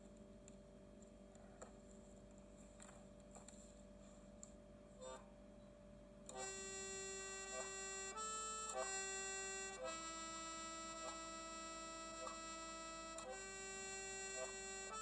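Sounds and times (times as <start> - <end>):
accordion playing slow tune: 6.3 - 15.0.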